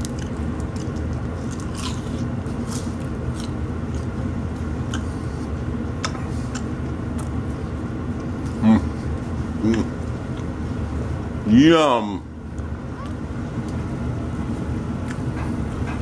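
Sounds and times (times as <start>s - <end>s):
crunchy chewing close to microphone: 0.0s - 10.6s
steady low hum: 0.0s - 16.0s.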